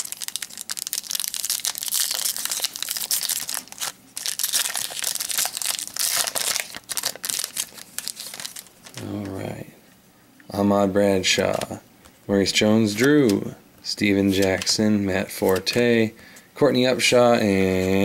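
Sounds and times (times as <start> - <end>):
foil wrapper tearing and crinkling: 0.0 - 9.0.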